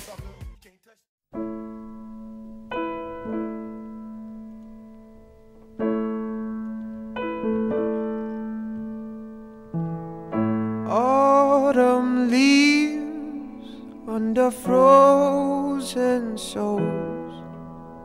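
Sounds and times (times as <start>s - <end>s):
piano playing slow chords: 1.3s - 18.0s.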